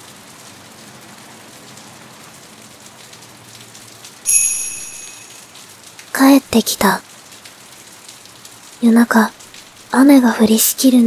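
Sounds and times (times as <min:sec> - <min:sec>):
steady rain falling: 0:00.0 - 0:11.0
high ringing tone: 0:04.3 - 0:05.5.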